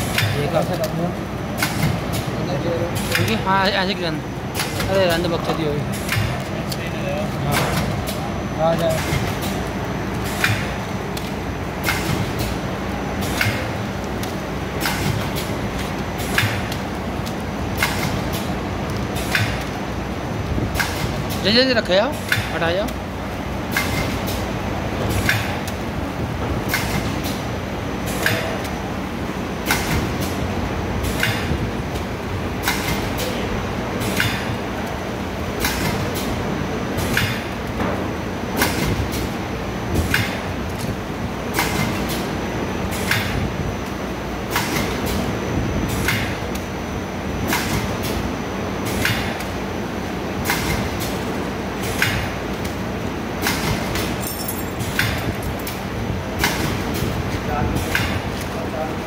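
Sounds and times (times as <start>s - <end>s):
packing machine clacking: 0.0s - 33.4s.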